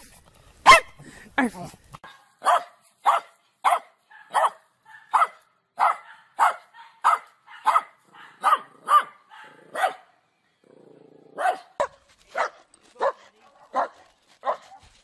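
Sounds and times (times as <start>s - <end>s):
small dog barking: 0.6s - 0.9s, 2.0s - 10.1s, 11.4s - 14.8s.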